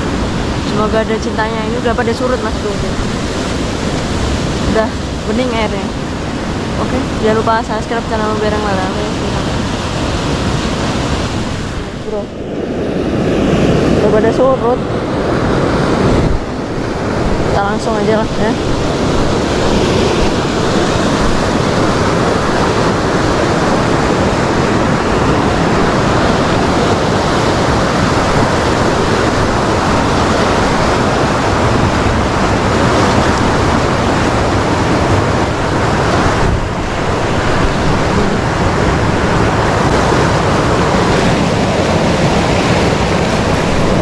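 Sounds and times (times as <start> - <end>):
stream rushing through rapids: 0.0 - 44.0.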